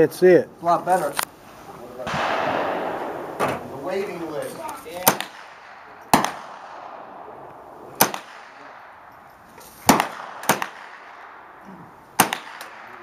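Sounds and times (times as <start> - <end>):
rifle shots: 2.1 - 9.1, 9.8 - 13.0.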